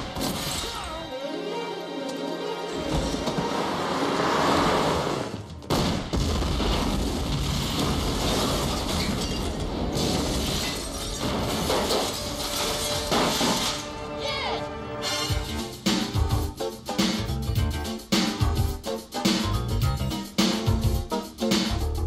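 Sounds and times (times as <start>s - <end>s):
film score music: 0.0s - 6.2s, 10.6s - 22.0s
car explosion blast: 5.7s - 11.9s.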